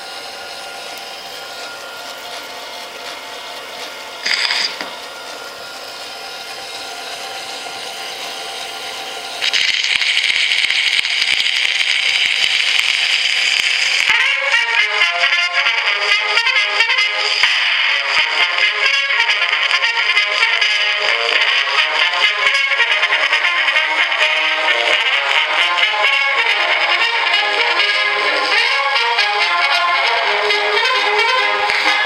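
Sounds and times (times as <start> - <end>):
phonograph mechanism whirring: 0.0 - 32.0
phonograph surface hiss: 0.1 - 7.8, 8.6 - 14.1.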